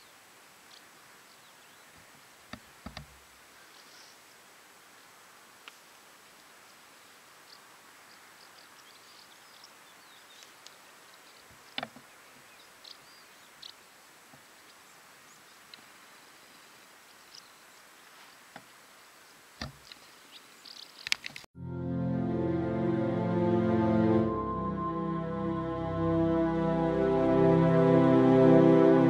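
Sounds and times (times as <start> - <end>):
steady hiss: 0.0 - 21.5.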